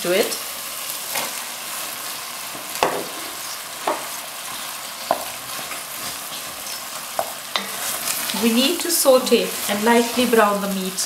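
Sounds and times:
meat sizzling in sauce: 0.0 - 11.0.

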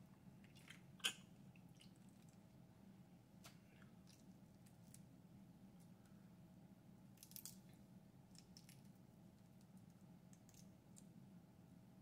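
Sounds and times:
low steady hum: 0.0 - 12.0
shellfish shell cracking: 7.2 - 7.7.

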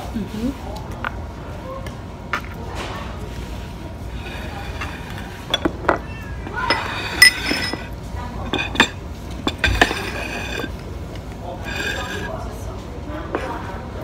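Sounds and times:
utensils clinking on ceramic plates: 4.1 - 12.6.

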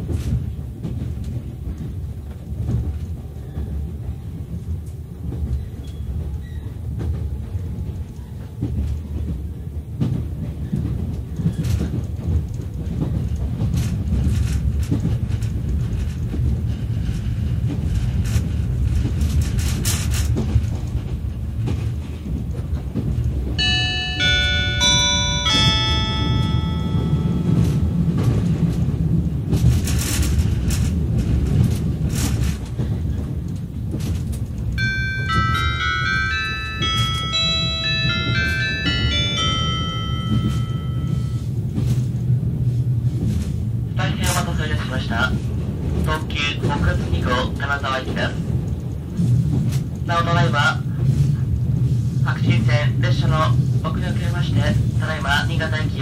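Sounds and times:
train cabin low rumble: 0.0 - 56.0.

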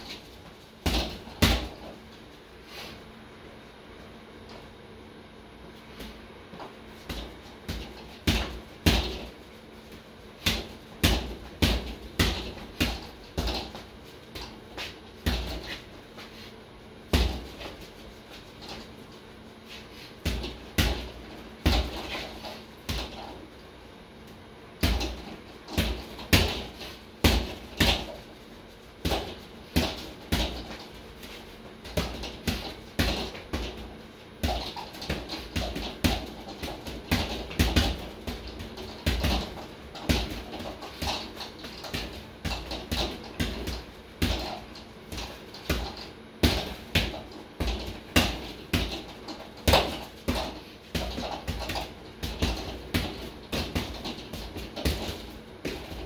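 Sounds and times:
boxing gloves hitting a bag: 0.0 - 2.0, 7.0 - 9.4, 10.4 - 15.8, 17.1 - 17.8, 20.2 - 23.3, 24.8 - 28.3, 29.0 - 56.0.

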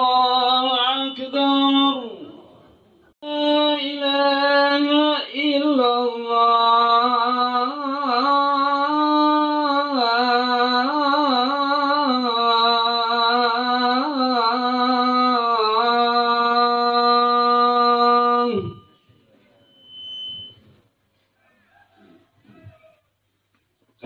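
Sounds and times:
man chanting call to prayer: 0.0 - 19.0.

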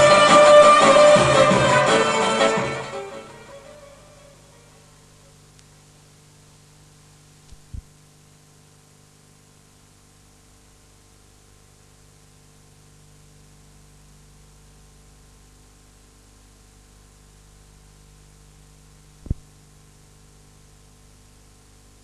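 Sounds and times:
electrical hum with hiss: 0.0 - 22.0
low thumps: 19.2 - 19.5.

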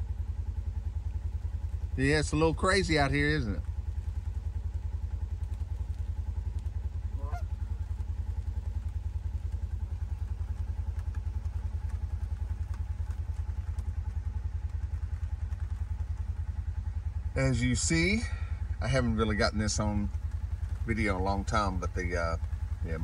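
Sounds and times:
low pulsing rumble: 0.0 - 23.0
goose honking: 7.1 - 7.8.

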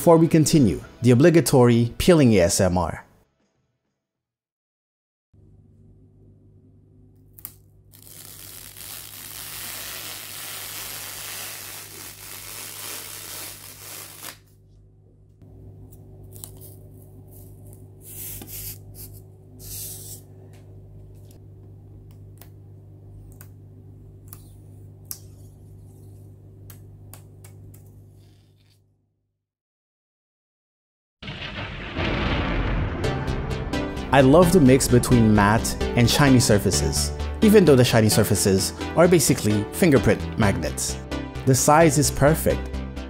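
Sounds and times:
film crackling: 7.4 - 14.5
plastic film peeling hiss: 7.4 - 14.5.

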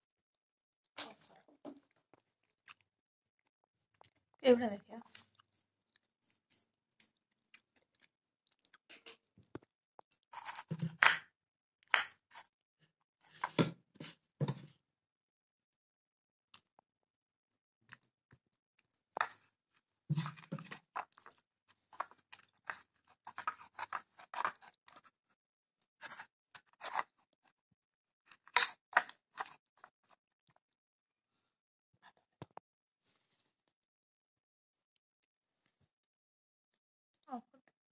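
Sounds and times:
hand crushing spices: 20.1 - 25.1.

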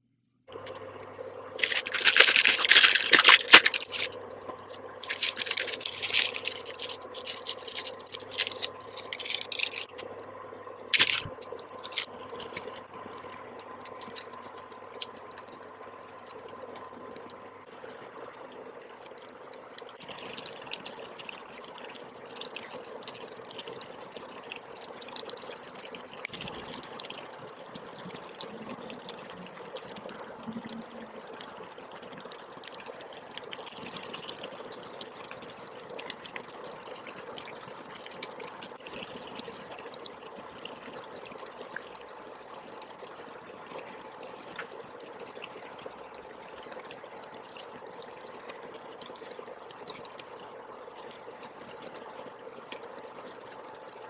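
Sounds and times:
noodles simmering with pops: 0.5 - 20.2
plastic packets crinkling and tearing: 1.6 - 4.2, 5.0 - 10.0, 10.9 - 12.7.

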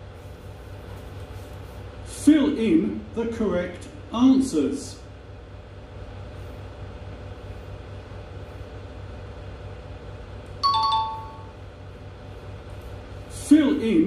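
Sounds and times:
faint steady hum: 0.0 - 14.0
two-note chime: 10.6 - 11.5.

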